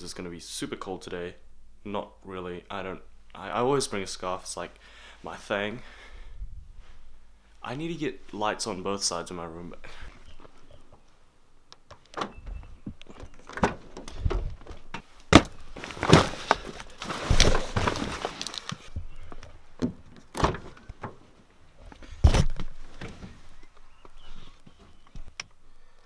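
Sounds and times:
rustling movement: 0:09.7 - 0:25.3.

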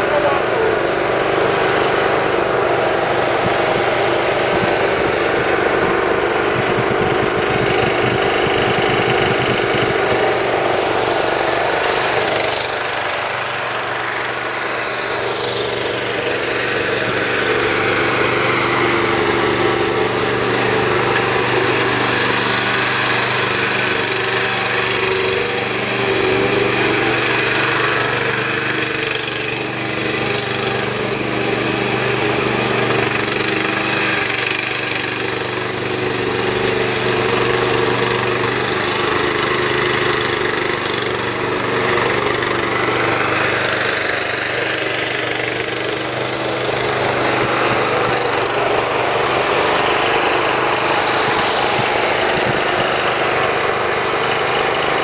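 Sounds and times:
riding mower engine running: 0:00.0 - 0:55.0.

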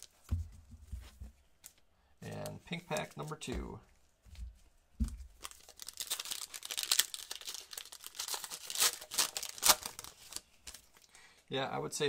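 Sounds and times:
wrapper tearing and crinkling: 0:05.4 - 0:11.1.

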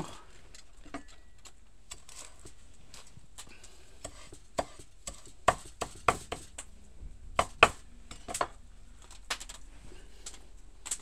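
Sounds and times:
knife chopping on cutting board: 0:04.0 - 0:06.5, 0:07.4 - 0:08.5.

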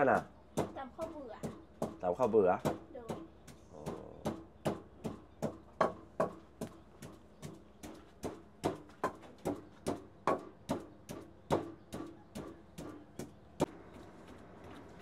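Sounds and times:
wooden pestle pounding in mortar: 0:00.0 - 0:00.8, 0:01.4 - 0:13.8.

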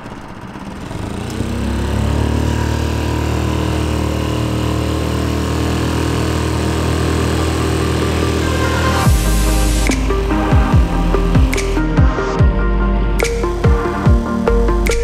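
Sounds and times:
outboard motor at high revs: 0:00.0 - 0:11.8.

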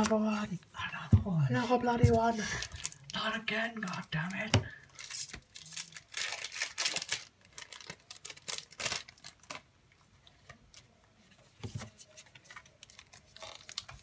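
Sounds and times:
foil wrapper crinkling and tearing: 0:02.5 - 0:03.2, 0:04.9 - 0:09.7, 0:12.4 - 0:14.0.

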